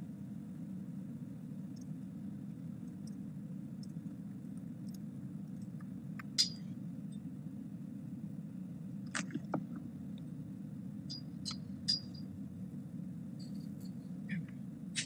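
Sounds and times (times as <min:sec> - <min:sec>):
low room hum: 0:00.0 - 0:15.0
sharp clicks and squeaks: 0:04.8 - 0:06.7, 0:11.1 - 0:12.3, 0:13.4 - 0:15.0.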